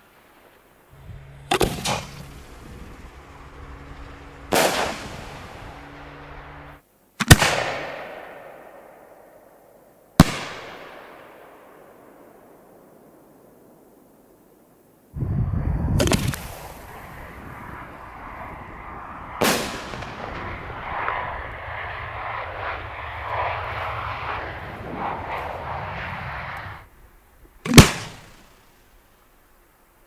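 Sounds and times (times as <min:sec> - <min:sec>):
firework boom: 0:01.0 - 0:06.8
firework hissing: 0:01.0 - 0:06.8, 0:15.2 - 0:26.9
sharp firework bang: 0:01.2 - 0:05.8, 0:19.4 - 0:21.2
sharp firework cracks: 0:01.2 - 0:09.0, 0:10.2 - 0:11.6, 0:16.0 - 0:18.2, 0:19.0 - 0:26.9, 0:27.6 - 0:28.6.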